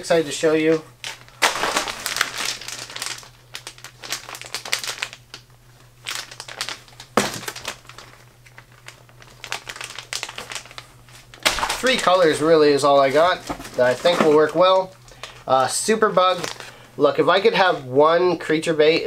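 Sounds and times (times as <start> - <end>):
plastic packs crinkling: 0.1 - 17.8.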